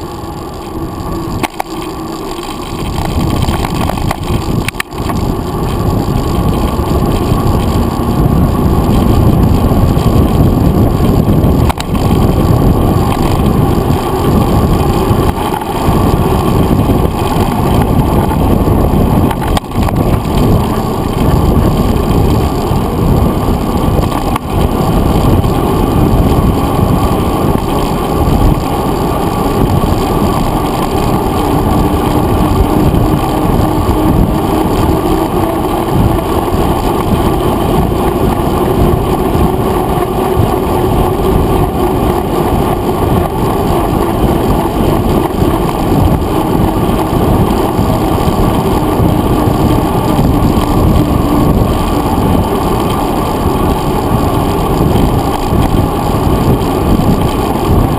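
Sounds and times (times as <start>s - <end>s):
muffled wind and tyre rumble: 0.0s - 57.9s.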